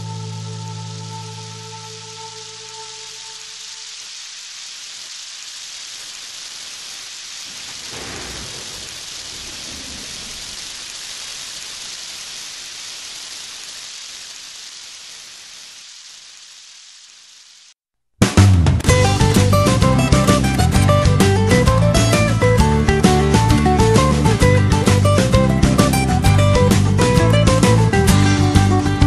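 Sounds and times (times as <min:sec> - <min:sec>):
steady rain: 0:00.0 - 0:17.8, 0:18.7 - 0:29.0
thunder rolling: 0:07.4 - 0:12.4
guitar music: 0:18.9 - 0:29.0.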